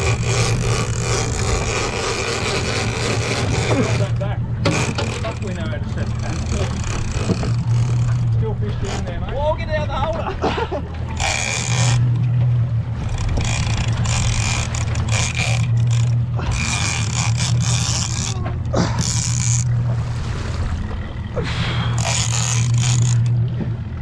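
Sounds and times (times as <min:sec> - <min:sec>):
fishing reel buzzing: 0:00.0 - 0:09.1, 0:11.1 - 0:12.3, 0:12.9 - 0:19.8, 0:21.6 - 0:23.4
outboard motor humming: 0:00.0 - 0:24.0.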